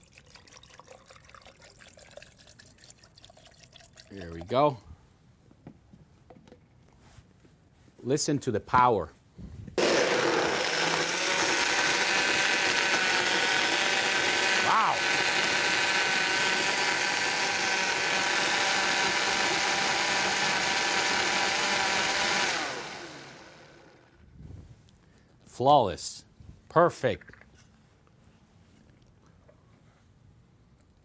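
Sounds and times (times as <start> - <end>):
blender running: 9.8 - 24.1.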